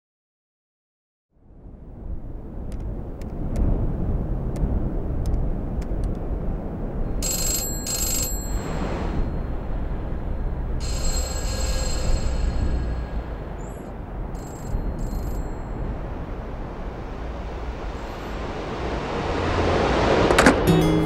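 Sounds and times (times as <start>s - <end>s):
steady low rumble: 1.3s - 21.0s
telephone bell ringing: 7.2s - 9.5s, 10.8s - 15.9s.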